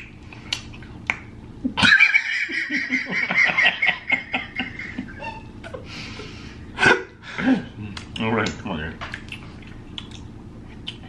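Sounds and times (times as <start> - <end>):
man laughing: 1.6 - 8.0.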